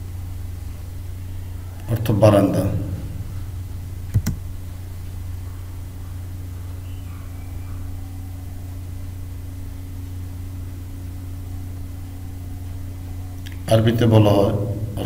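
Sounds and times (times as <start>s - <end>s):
low electrical hum: 0.0s - 15.0s
sharp click: 4.1s - 4.4s.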